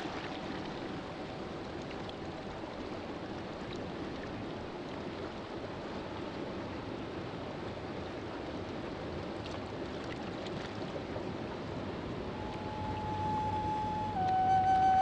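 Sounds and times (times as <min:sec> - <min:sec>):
running water rushing: 0:00.0 - 0:06.6, 0:09.3 - 0:15.0
sustained musical note: 0:12.2 - 0:15.0.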